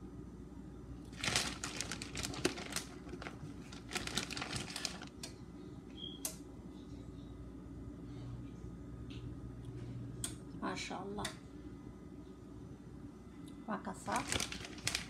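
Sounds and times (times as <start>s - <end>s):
plastic packaging crinkling: 1.1s - 5.2s, 14.0s - 15.0s.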